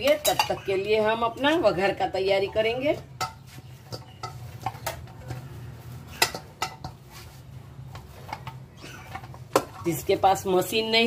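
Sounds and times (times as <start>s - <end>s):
metal bowl knocking and clinking: 0.0s - 0.9s, 2.5s - 5.5s, 6.1s - 7.1s.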